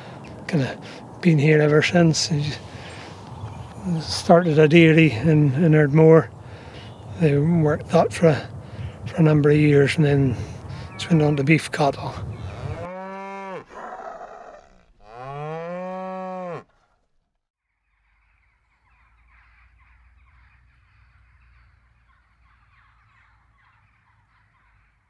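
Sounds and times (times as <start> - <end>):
distant birds calling: 0.0 - 16.6, 17.8 - 25.0
cattle mooing: 12.4 - 17.0.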